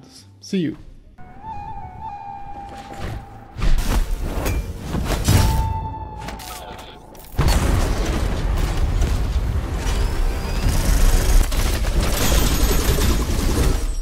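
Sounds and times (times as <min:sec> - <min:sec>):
music: 0:00.0 - 0:07.4
weapon fire and explosions: 0:03.1 - 0:14.0.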